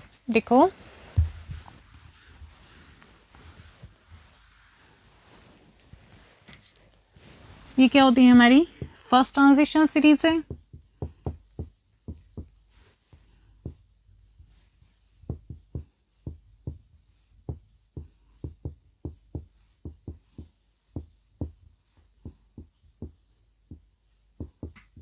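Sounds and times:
marker writing on a whiteboard: 7.8s - 25.0s.

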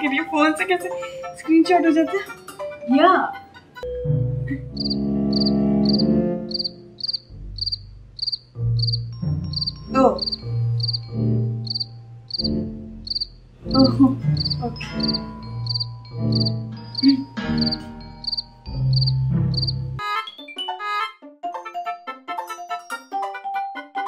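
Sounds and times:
low background music: 0.0s - 24.0s
cricket chirping: 4.7s - 19.9s.

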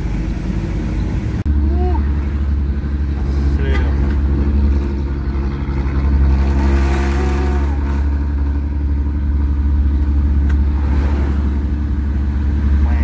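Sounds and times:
diesel truck engine running: 0.0s - 13.0s.

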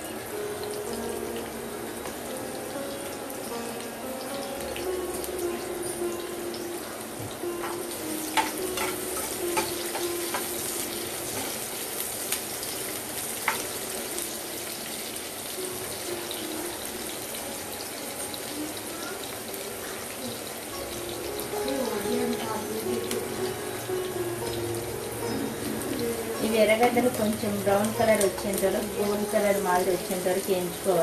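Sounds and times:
onions sizzling in oil: 0.0s - 31.0s.

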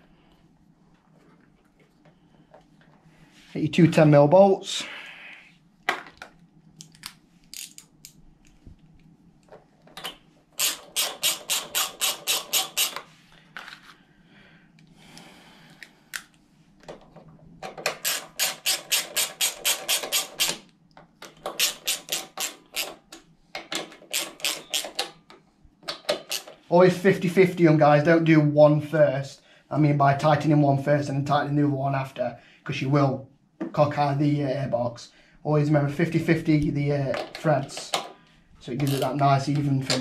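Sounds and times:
socket ratchet clicking: 10.0s - 13.0s, 17.8s - 20.6s, 21.3s - 25.2s, 25.9s - 26.6s.

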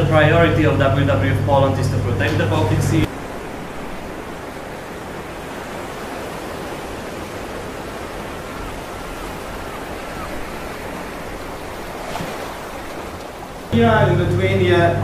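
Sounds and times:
rushing water: 3.0s - 13.8s.

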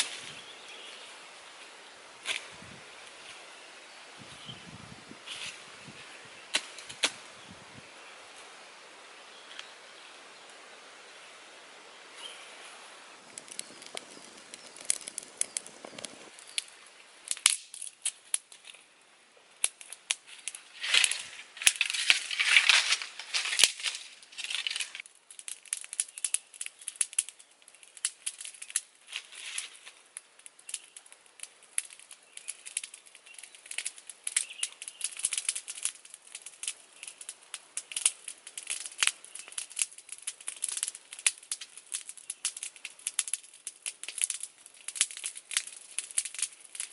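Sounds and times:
dry plant material rustling: 0.0s - 3.6s, 5.2s - 7.2s, 12.1s - 16.8s, 19.6s - 46.9s
wood fire crackling: 0.0s - 46.9s.

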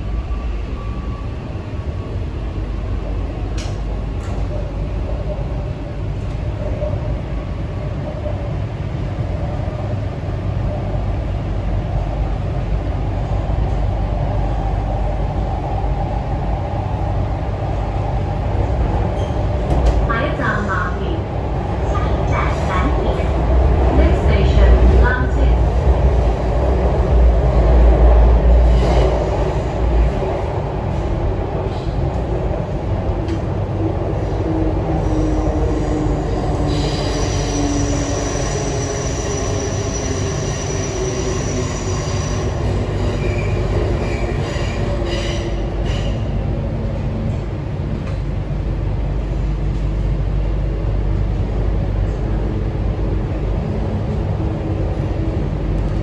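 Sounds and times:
train wheels rumbling on rail: 0.0s - 56.0s
high steady wheel squeal: 35.1s - 46.2s.

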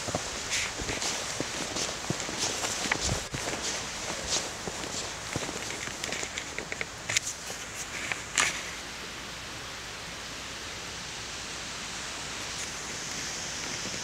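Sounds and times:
footsteps crunching in wet snow: 0.0s - 8.0s
steady even hiss: 0.0s - 14.0s.

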